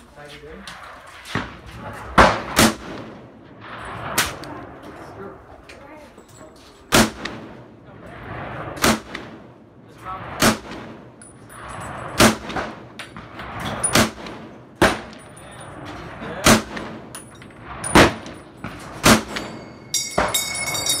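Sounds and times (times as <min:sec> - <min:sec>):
rifle shots: 0:01.3 - 0:04.6, 0:06.9 - 0:07.7, 0:08.3 - 0:09.6, 0:10.2 - 0:15.2, 0:16.3 - 0:19.6
metallic ping: 0:19.2 - 0:21.0.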